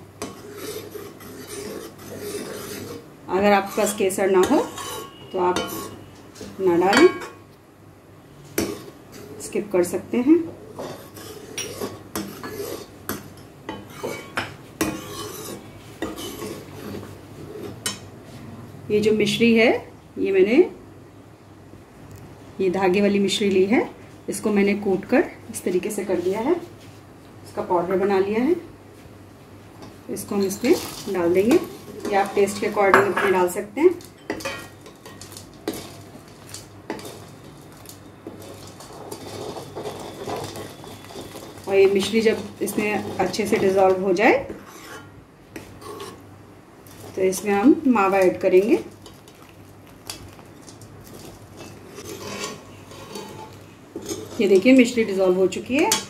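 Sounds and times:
metal ladle scraping metal pan: 0:00.2 - 0:07.4, 0:10.7 - 0:18.0, 0:30.3 - 0:33.6, 0:34.2 - 0:46.2, 0:51.1 - 0:55.3
metal spoon clinking against pan: 0:34.0 - 0:35.9.

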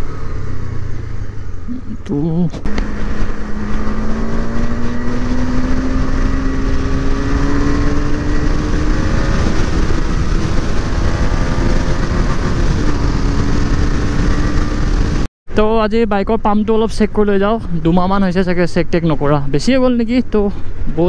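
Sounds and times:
motorcycle engine running: 0:00.0 - 0:15.3
wind on microphone: 0:00.0 - 0:15.3.

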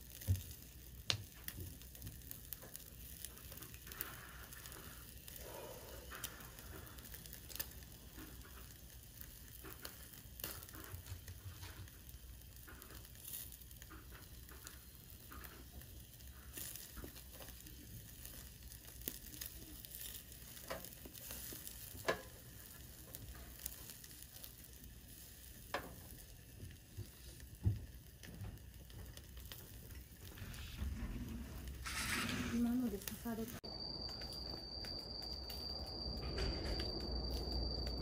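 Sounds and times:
food sizzling on a grill: 0:00.0 - 0:38.0
sharp pops and clicks: 0:00.2 - 0:03.9.

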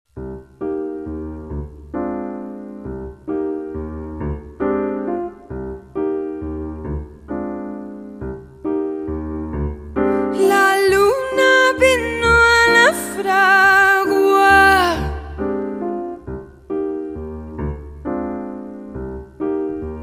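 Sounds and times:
sustained keyboard chords: 0:00.2 - 0:20.0
person singing: 0:10.2 - 0:15.8.

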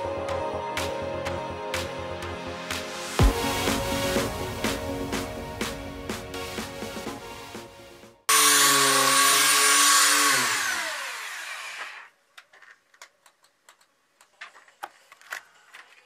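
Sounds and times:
belt sander winding down: 0:08.3 - 0:12.1.

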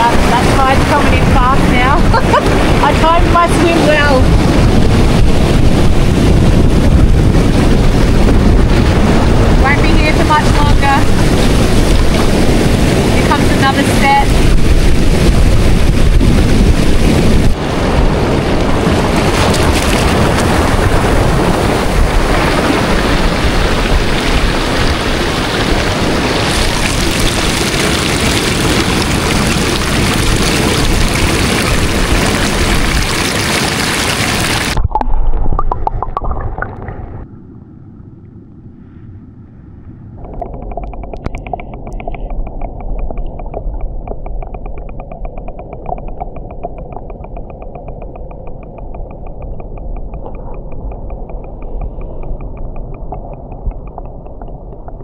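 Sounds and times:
waves surging over rocks: 0:00.0 - 0:34.8
steady hum with fast flutter: 0:00.0 - 0:55.0.

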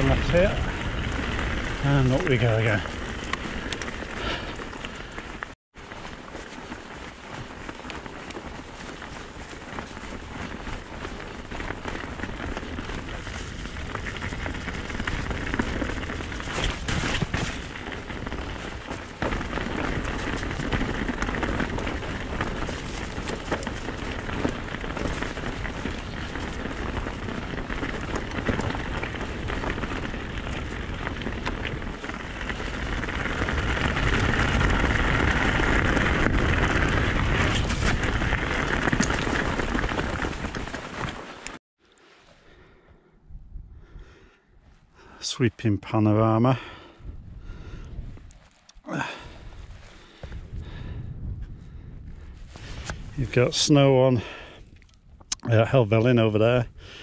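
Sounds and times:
wind rushing over microphone: 0:00.0 - 0:05.5, 0:10.2 - 0:41.0, 0:43.1 - 0:44.3, 0:46.8 - 0:48.4, 0:49.2 - 0:55.3
bike rattling and knocking: 0:00.0 - 0:41.6
bike tyres rolling on muddy track: 0:00.0 - 0:42.9, 0:43.8 - 0:57.0.

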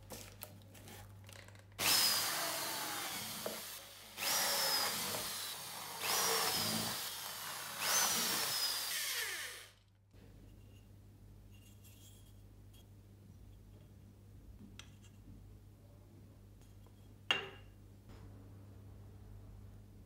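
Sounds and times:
electric drill whining: 0:01.8 - 0:09.8.

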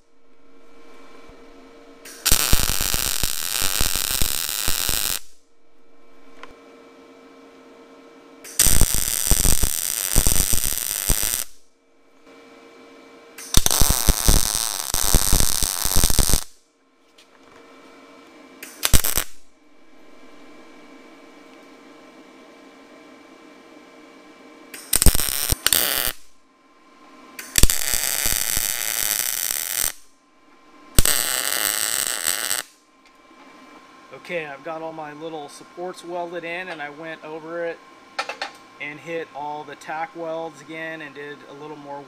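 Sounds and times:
steady hum: 0:00.0 - 0:42.0
welding arc crackling and hissing: 0:02.0 - 0:05.4, 0:08.5 - 0:11.6, 0:13.4 - 0:16.6, 0:18.6 - 0:19.4, 0:24.8 - 0:26.3, 0:27.4 - 0:30.1, 0:30.9 - 0:32.8.

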